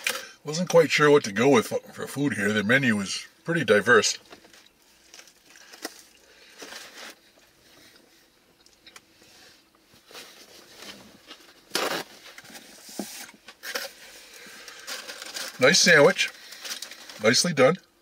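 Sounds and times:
man chewing with mouth smacks: 7.4 - 9.1.

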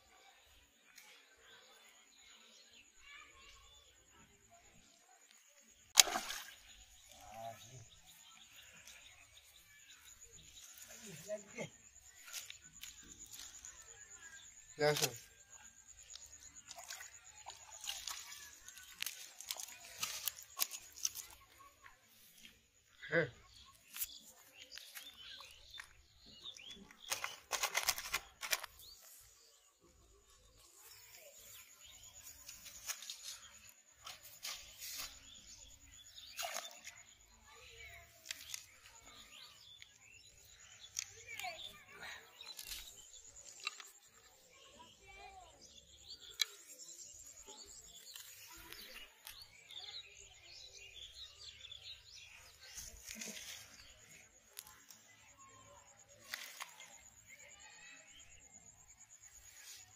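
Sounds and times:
small birds chirping: 0.0 - 59.9
crackling and rustling of dry leaves: 6.2 - 22.4, 23.7 - 29.3, 30.6 - 44.1, 52.1 - 55.1, 56.2 - 57.7.

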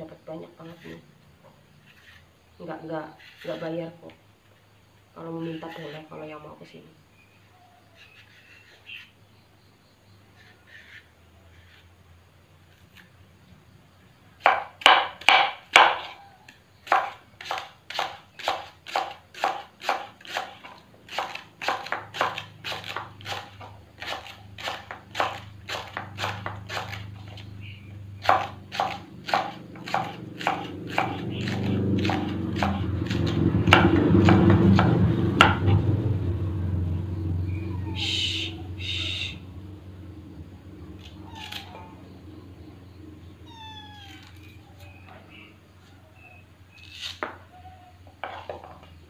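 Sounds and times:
knife chopping on wooden board: 14.4 - 16.2, 16.8 - 27.4, 28.2 - 35.9
low rumble: 33.4 - 43.9.

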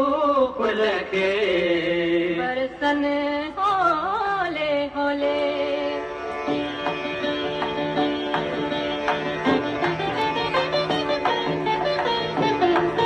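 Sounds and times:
indian classical music: 0.0 - 13.0
plucked string strikes: 6.5 - 13.0.

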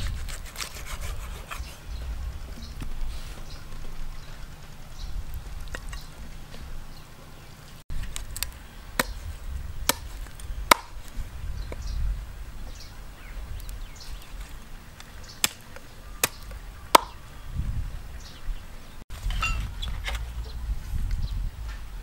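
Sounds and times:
cleaver chopping on wooden board: 9.9 - 11.0, 17.0 - 17.2.

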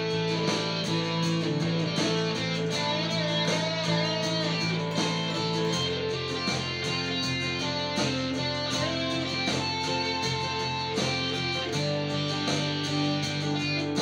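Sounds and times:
eighties-style backing track: 0.0 - 14.0
electric guitar: 0.0 - 14.0.

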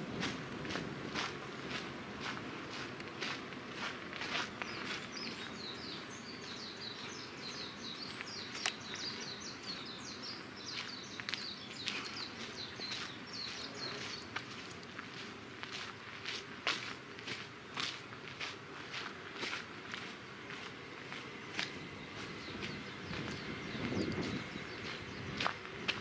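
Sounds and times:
footsteps on gravel: 0.0 - 26.0
small bird chirping: 4.5 - 14.4, 21.5 - 25.5.

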